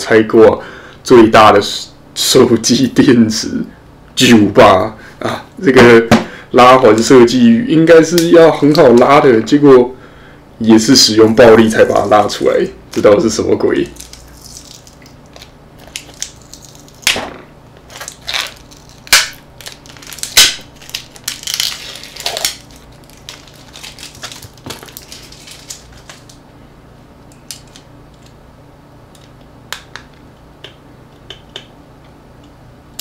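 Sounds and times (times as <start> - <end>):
plastic parts crackling: 13.8 - 17.2, 17.8 - 26.4.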